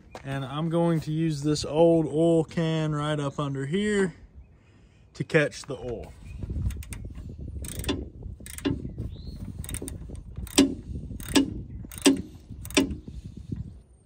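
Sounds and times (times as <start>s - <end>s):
ratchet wrench clicking: 6.7s - 8.8s, 9.6s - 13.1s.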